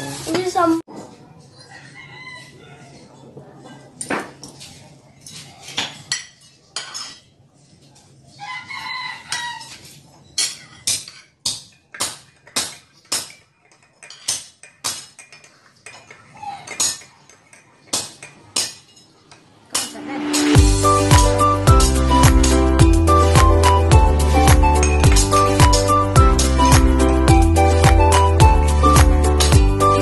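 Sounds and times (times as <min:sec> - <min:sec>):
cutlery clinking on plates: 0:03.6 - 0:08.1, 0:09.2 - 0:20.6.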